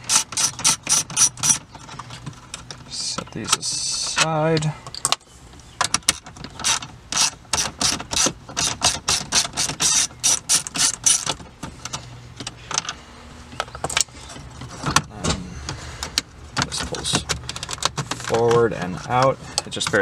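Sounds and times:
ratchet wrench clicking: 0.0s - 1.6s, 6.6s - 11.3s.

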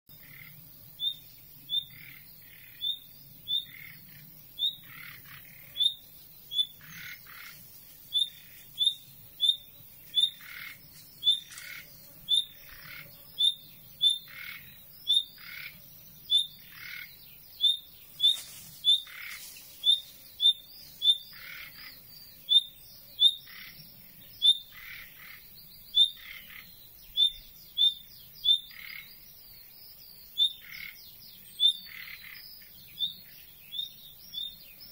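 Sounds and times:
nightingale calling: 0.1s - 34.9s.

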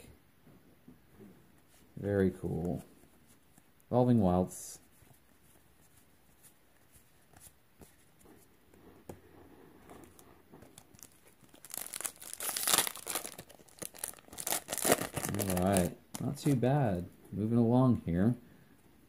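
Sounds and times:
foil wrapper tearing and crinkling: 10.9s - 16.6s.

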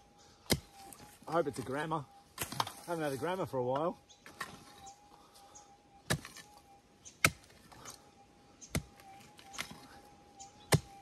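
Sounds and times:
pick striking hard ground: 1.6s - 3.1s.

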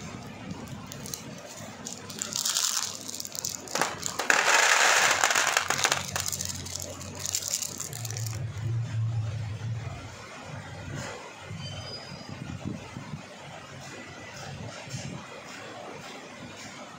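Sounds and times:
plastic bag crinkling: 0.5s - 8.5s
plastic beads pouring into box: 0.5s - 8.6s.

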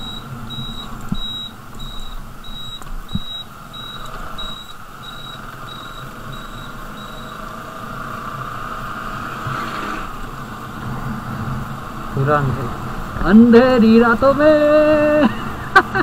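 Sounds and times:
high electronic beep: 0.0s - 7.4s
motorcycle running: 0.0s - 16.0s.

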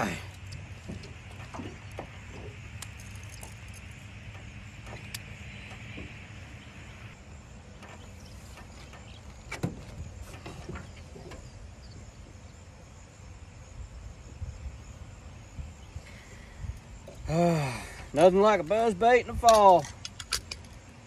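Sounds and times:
small clicks and knocks: 19.4s - 20.9s.

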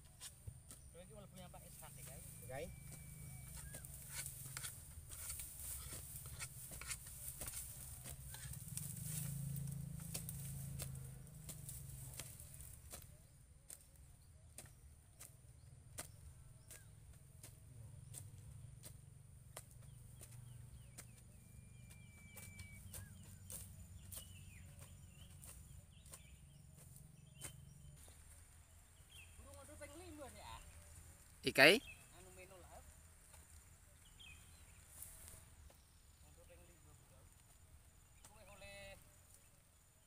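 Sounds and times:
faint birdsong: 0.0s - 40.0s
hoes chopping into soil: 2.0s - 28.4s.

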